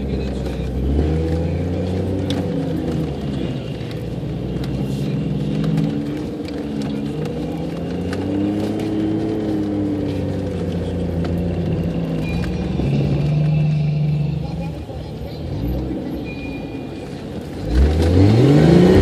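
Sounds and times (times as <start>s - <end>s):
car engine running: 0.0s - 19.0s
vehicle rattling and knocking: 0.0s - 19.0s.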